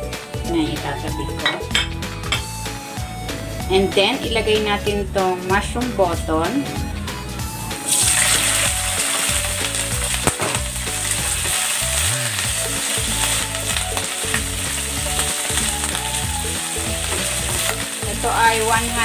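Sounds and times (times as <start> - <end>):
mushrooms sizzling in hot oil: 7.8 - 19.0.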